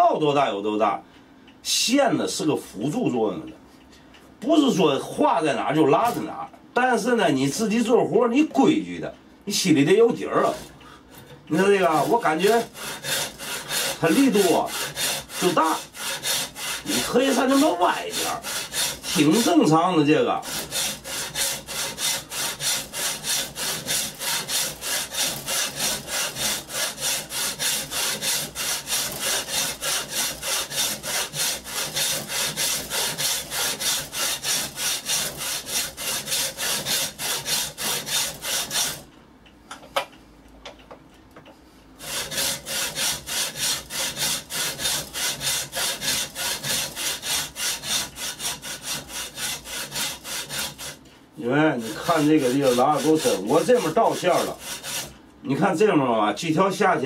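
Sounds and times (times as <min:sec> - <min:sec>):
saw cutting wood: 0:05.3 - 0:06.4, 0:10.0 - 0:10.8, 0:11.5 - 0:39.1, 0:42.0 - 0:55.1.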